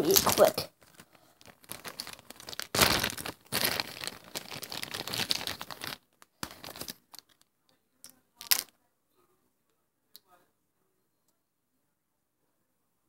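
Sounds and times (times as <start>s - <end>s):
close rustling and crinkling: 0.0s - 7.4s.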